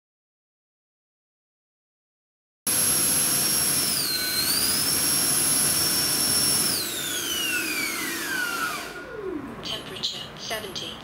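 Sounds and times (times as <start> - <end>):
electric ducted fan whining: 2.7 - 11.0.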